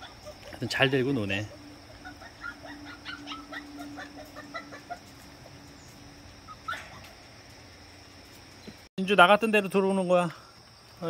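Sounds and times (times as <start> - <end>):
squeaky animal calls: 0.0 - 7.2
low steady hum: 0.0 - 8.8.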